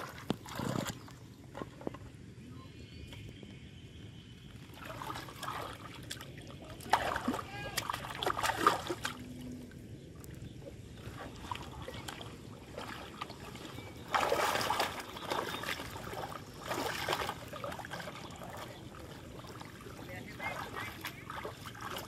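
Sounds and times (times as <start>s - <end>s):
water splashing and sloshing: 0.0s - 2.3s, 4.5s - 22.0s
water trickling: 4.7s - 22.0s.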